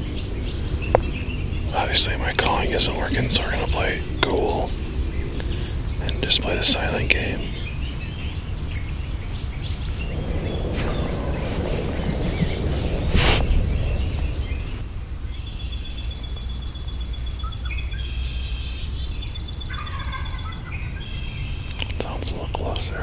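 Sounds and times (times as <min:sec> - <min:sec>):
rush of noise: 0:00.0 - 0:15.2
rapid bird trills: 0:00.0 - 0:22.1
songbirds chirping: 0:00.0 - 0:23.0
steady low rumble: 0:00.0 - 0:23.0.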